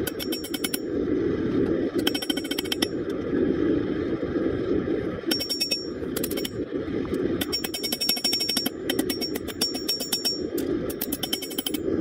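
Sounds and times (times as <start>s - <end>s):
gas forge burner roaring: 0.0s - 12.0s
ringing metal taps: 7.4s - 10.4s.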